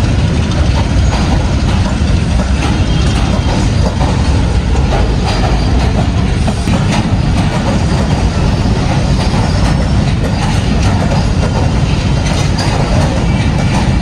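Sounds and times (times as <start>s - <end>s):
train wheels rumbling on rail: 0.0s - 14.0s
wheels clicking over rail joints: 0.0s - 14.0s.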